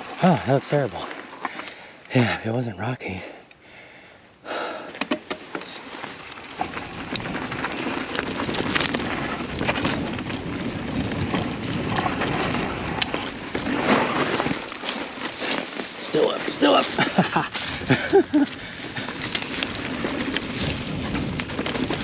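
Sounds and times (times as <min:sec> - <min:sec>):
bike clicking and rattling: 0:00.0 - 0:02.0, 0:04.9 - 0:22.0
bike tyres crunching on rock: 0:00.0 - 0:02.4, 0:05.3 - 0:22.0.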